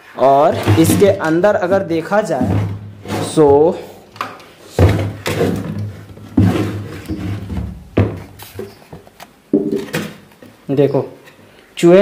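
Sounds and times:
wooden box knocking on table: 9.5 - 10.1.

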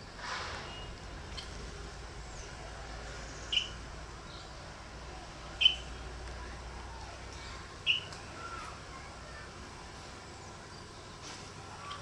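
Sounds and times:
bird chirps: 3.2 - 4.5, 5.6 - 5.9, 7.8 - 8.6.

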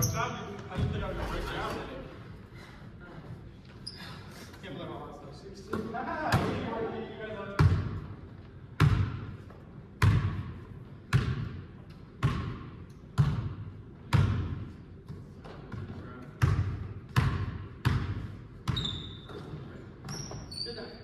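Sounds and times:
basketball bouncing on hardwood floor: 8.8 - 9.3, 10.0 - 10.5, 12.2 - 12.6, 13.2 - 20.3.

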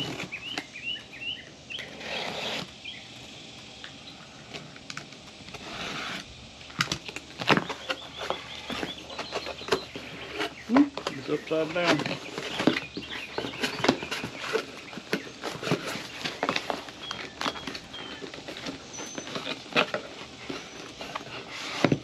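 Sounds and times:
cardboard scraping and rustling: 0.0 - 1.0, 1.7 - 2.8, 5.5 - 22.0
bird chirping: 0.0 - 3.2, 7.6 - 19.6.

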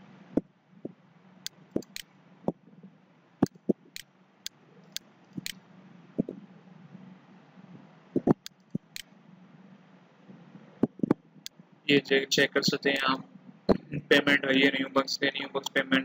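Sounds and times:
faint low hum: 0.0 - 16.0
computer mouse clicking: 1.8 - 2.0, 4.9 - 5.6, 8.2 - 9.1.

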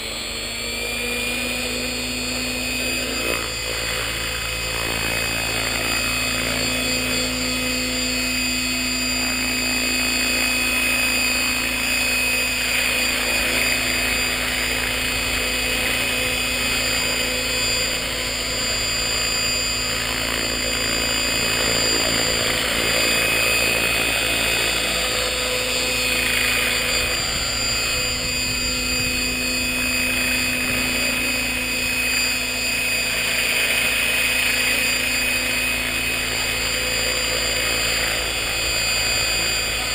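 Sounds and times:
model helicopter rotor whine: 0.0 - 39.9.

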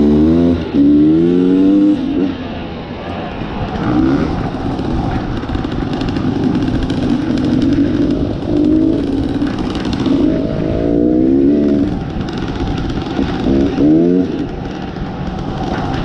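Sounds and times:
dirt bike engine revving: 0.0 - 2.4, 3.7 - 16.0.

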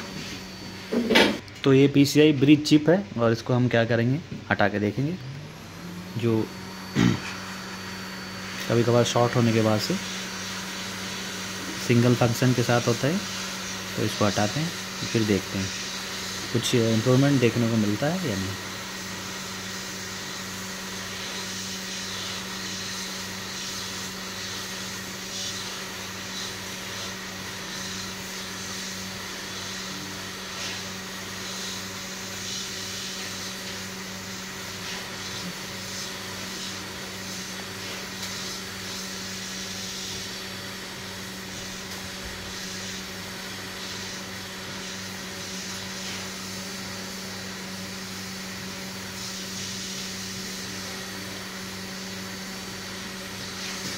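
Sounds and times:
hot air blower hum and hiss: 0.0 - 53.9.

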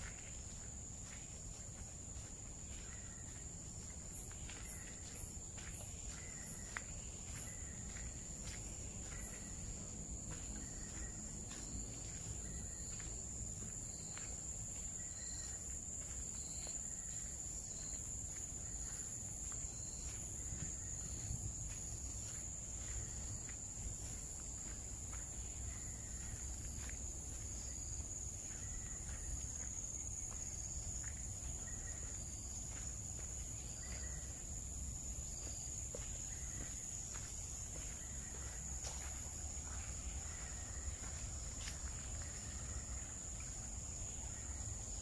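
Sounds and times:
faint footsteps on a trail: 0.0 - 45.0
insects high-pitched drone: 0.0 - 45.0.

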